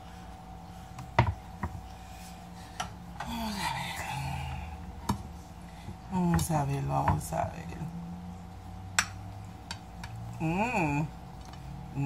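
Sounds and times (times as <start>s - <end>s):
person humming low: 3.2s - 4.9s.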